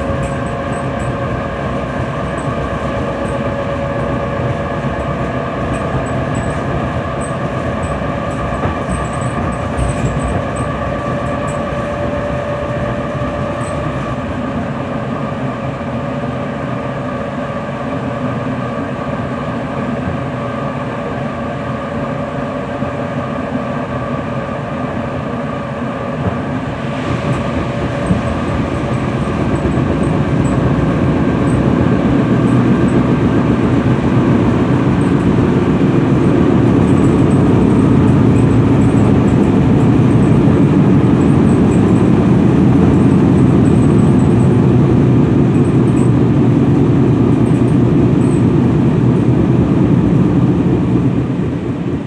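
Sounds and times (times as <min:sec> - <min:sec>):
train motor whine: 0:00.0 - 0:52.0
train wheels rumbling on track: 0:00.0 - 0:52.0.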